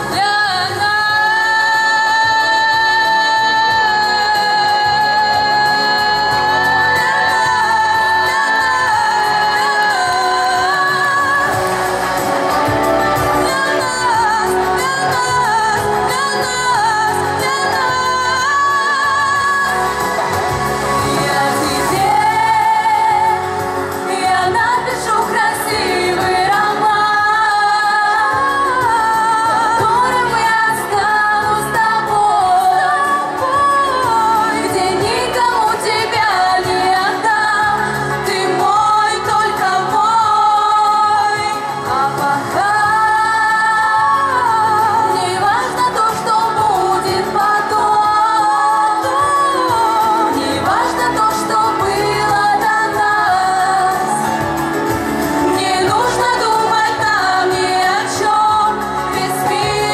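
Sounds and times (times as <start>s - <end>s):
instrumental backing music: 0.0s - 59.9s
women singing pop song: 0.0s - 59.9s.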